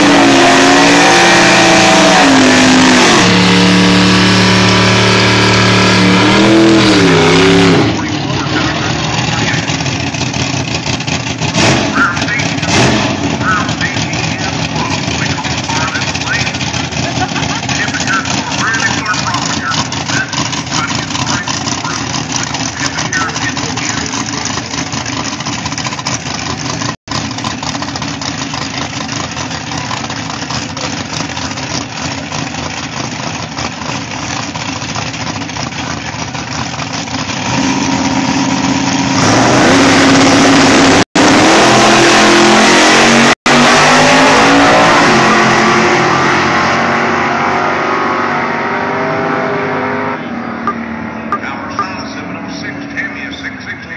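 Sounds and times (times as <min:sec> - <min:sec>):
car engines idling: 0:00.0 - 0:41.3, 0:50.0 - 0:53.9
car engines revving and accelerating: 0:00.0 - 0:53.9.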